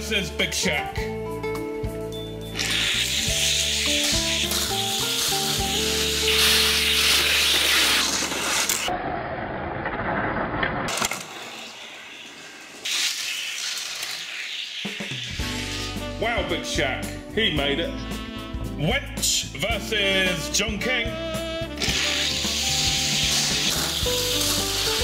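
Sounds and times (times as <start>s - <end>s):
background music: 0.0s - 8.1s, 15.3s - 25.0s
toy cars rolling down plastic track: 4.0s - 8.9s, 9.8s - 15.1s, 21.8s - 25.0s.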